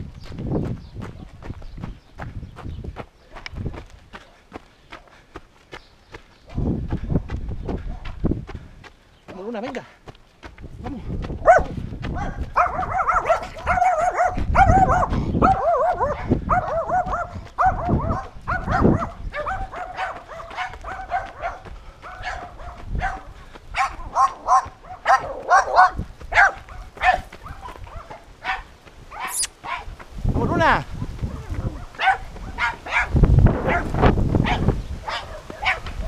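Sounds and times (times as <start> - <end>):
dog barking: 7.9 - 8.2, 11.4 - 29.9, 31.3 - 36.0.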